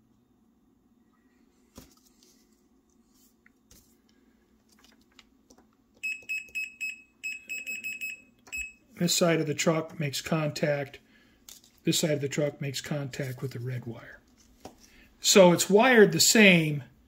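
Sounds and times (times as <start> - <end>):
multimeter continuity beeps: 6.0 - 8.8
clicks of handling probes: 11.4 - 11.8.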